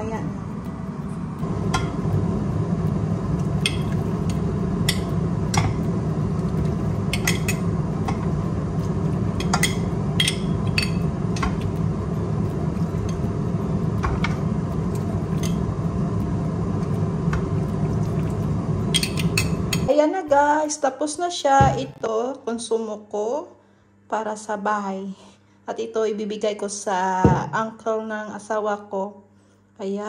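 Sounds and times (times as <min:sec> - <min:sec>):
steady low hum: 0:00.0 - 0:30.0
metal spoon clinking on glass: 0:07.1 - 0:07.7, 0:09.4 - 0:11.0, 0:18.9 - 0:19.9.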